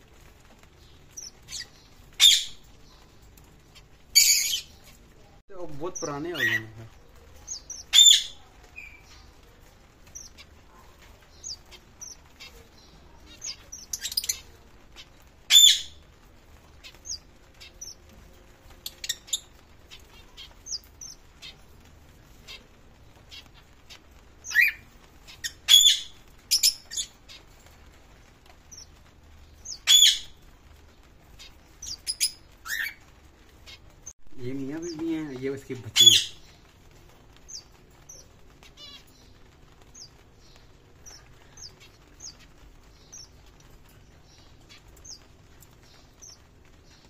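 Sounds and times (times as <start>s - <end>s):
sharp bird calls: 6.0s - 9.4s, 11.3s - 16.0s, 22.4s - 27.5s, 28.7s - 30.4s, 31.3s - 33.9s
finches chirping: 31.3s - 33.8s.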